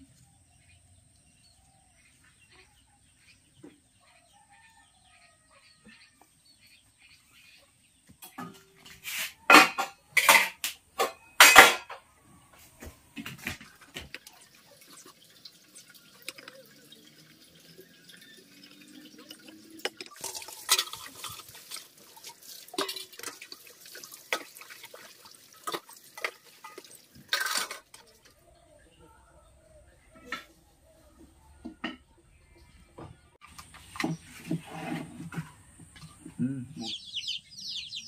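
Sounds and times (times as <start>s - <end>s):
metal pots and utensils clattering: 8.2s - 12.1s, 12.8s - 28.4s, 31.6s - 32.1s, 33.4s - 36.3s
running water splashing: 13.2s - 28.3s.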